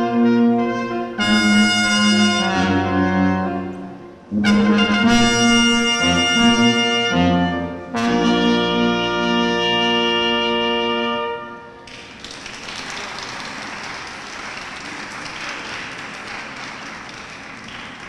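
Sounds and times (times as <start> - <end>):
brass ensemble playing chords: 0.0 - 11.8.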